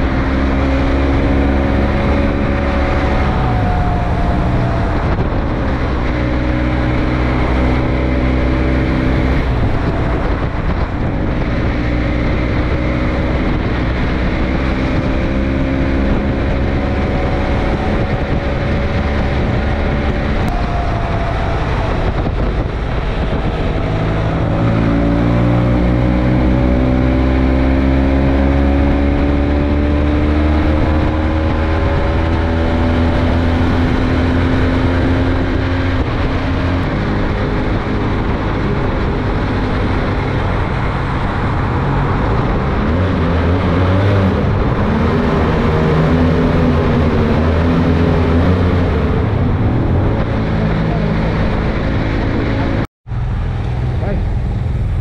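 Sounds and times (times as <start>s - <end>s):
motorcycle engine accelerating: 0.0s - 55.0s
wind rush and road noise: 0.0s - 55.0s.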